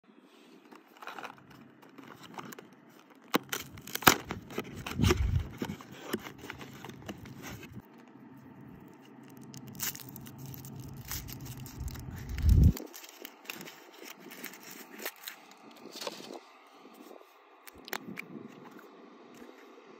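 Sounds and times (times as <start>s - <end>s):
foil wrapper crinkling: 0.6s - 16.4s
cardboard tearing: 0.9s - 7.8s, 9.2s - 15.4s
low rumble: 6.9s - 12.8s.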